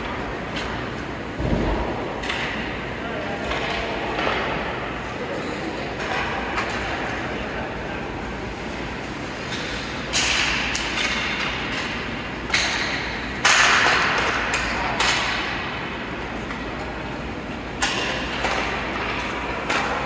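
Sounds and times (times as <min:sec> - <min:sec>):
hockey sticks and puck cracking: 0:01.5 - 0:02.8, 0:03.4 - 0:04.8, 0:06.0 - 0:07.3, 0:09.3 - 0:15.8, 0:17.8 - 0:20.0.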